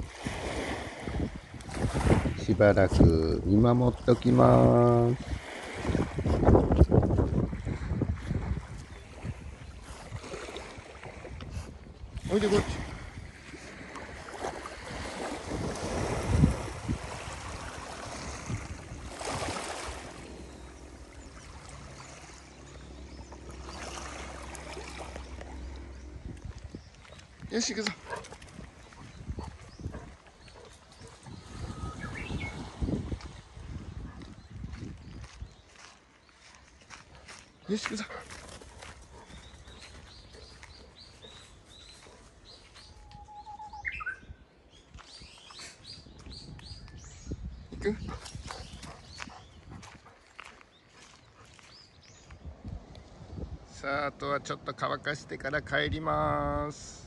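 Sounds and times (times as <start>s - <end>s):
water splashing from dog paddling: 5.0s - 11.5s, 12.2s - 31.8s
small birds chirping: 17.6s - 54.1s.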